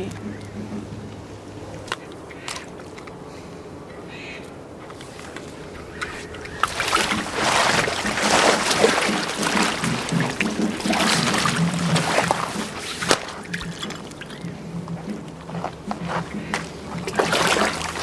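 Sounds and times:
water splashing in a paddling pool: 4.7 - 18.0
body dropping into water: 6.4 - 14.5, 16.6 - 18.0.

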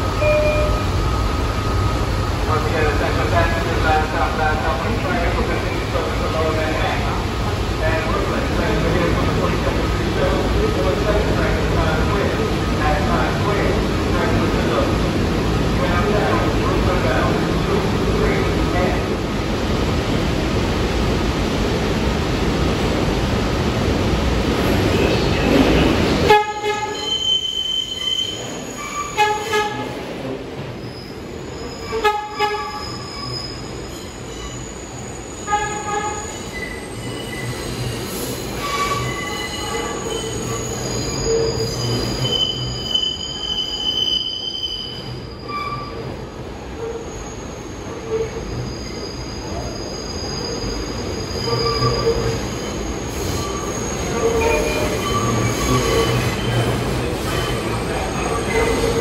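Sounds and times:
train low rumble: 0.0 - 27.1
train wheels squealing: 26.8 - 29.2, 30.8 - 32.0, 32.6 - 46.1, 46.8 - 59.0.

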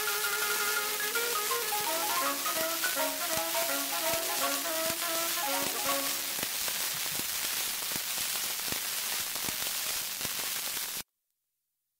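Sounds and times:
saxophone xylophone and piano music: 0.0 - 6.4
record surface hiss and crackle: 0.0 - 11.0
stylus clicking in run-out groove: 1.0 - 6.4.

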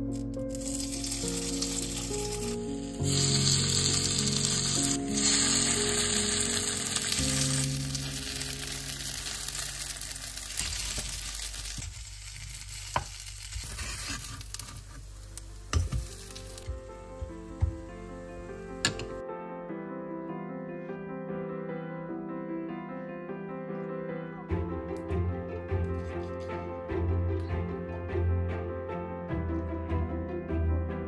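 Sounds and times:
pancakes sizzling in a pan: 0.6 - 16.6.

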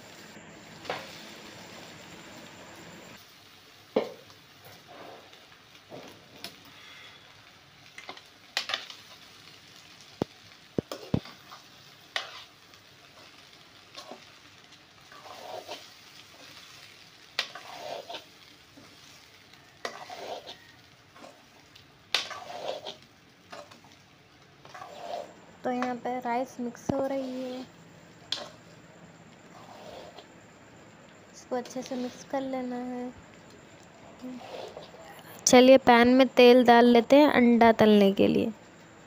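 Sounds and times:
faint frying sizzle: 0.0 - 39.0
metal spatula scraping a pan: 10.9 - 14.4, 15.0 - 23.9, 24.6 - 26.0, 27.0 - 28.7, 29.4 - 30.3, 31.6 - 32.4, 34.2 - 35.0.

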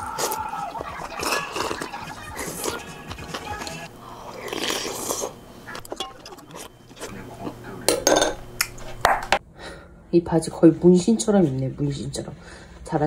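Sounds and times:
person slurping noodles: 0.0 - 2.9, 3.6 - 5.4
person chewing: 0.0 - 7.2.

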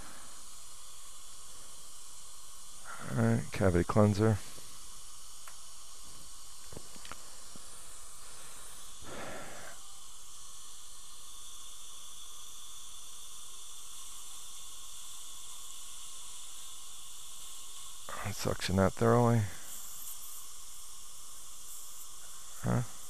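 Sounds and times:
dental suction hissing: 7.0 - 11.8.

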